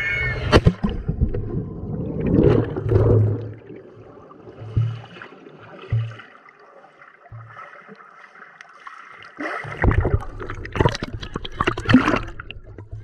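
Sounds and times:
water splashing and sloshing: 0.0s - 13.0s
low underwater knocks: 4.6s - 5.2s, 5.8s - 6.4s, 7.3s - 7.7s, 9.7s - 13.0s.

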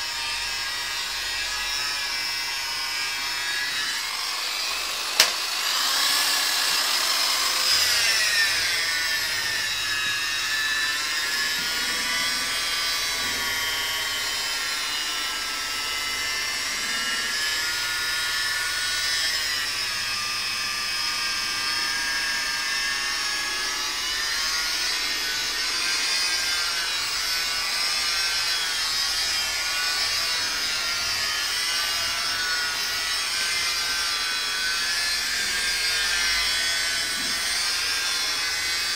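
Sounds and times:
car polisher motor whine: 0.0s - 38.9s
sharp click: 5.1s - 5.5s.

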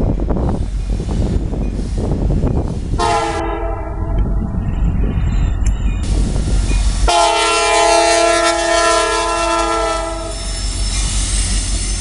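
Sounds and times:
freight train rumble: 0.0s - 12.0s
locomotive air horn blast: 3.0s - 4.2s, 7.0s - 10.4s.

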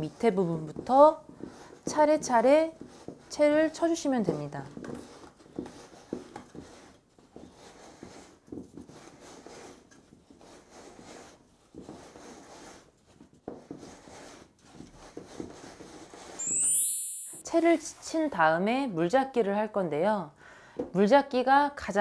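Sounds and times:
hands rubbing flour through sieve: 0.0s - 16.9s.

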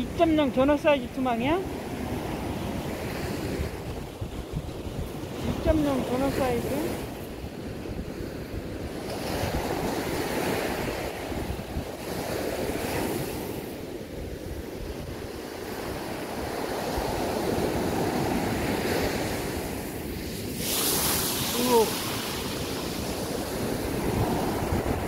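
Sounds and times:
wind on microphone: 0.0s - 25.0s
surf breaking on sand: 1.5s - 25.0s
hissing rush of foam: 20.2s - 23.5s.

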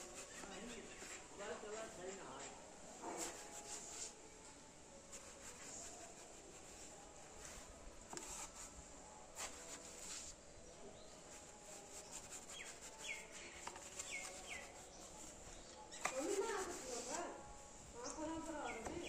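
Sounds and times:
bird chirping: 12.5s - 16.2s.

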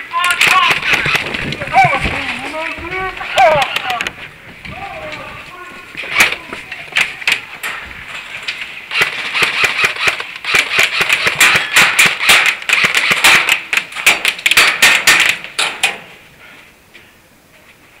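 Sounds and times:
airsoft guns firing: 0.2s - 2.0s, 8.9s - 16.0s.

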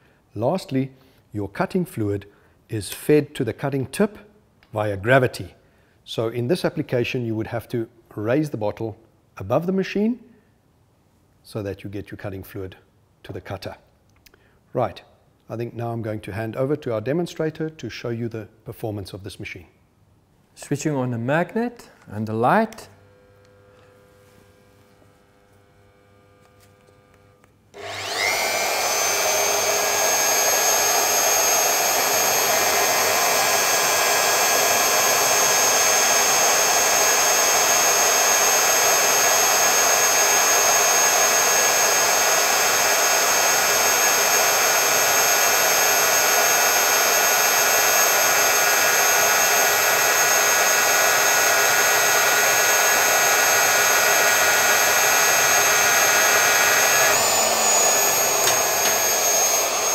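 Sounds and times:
core drill motor whining: 25.3s - 59.9s.

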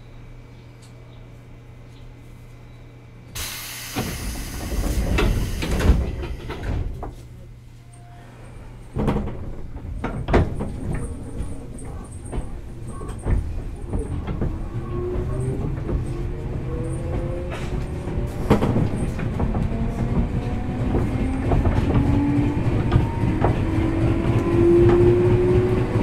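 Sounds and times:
train interior hum: 0.0s - 26.0s
compressed air hiss: 3.4s - 5.8s
sliding doors thudding shut: 3.4s - 7.0s
train heavy knocks: 3.4s - 7.2s, 12.2s - 26.0s.

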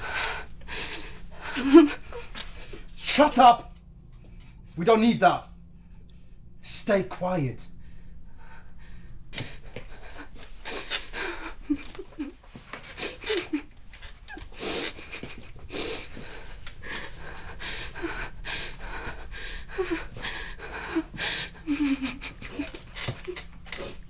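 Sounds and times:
woman whimpering: 0.0s - 2.8s, 9.4s - 24.0s
woman breathing hard: 0.0s - 3.0s, 7.7s - 24.0s.

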